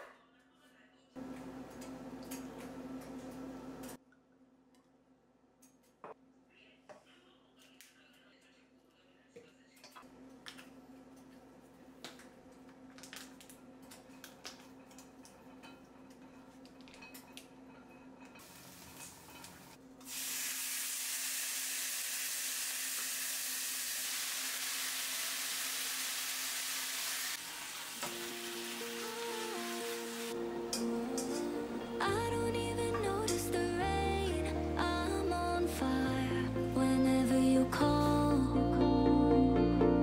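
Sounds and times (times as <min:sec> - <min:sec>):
meat sizzling in a wok: 0:20.1 - 0:30.3.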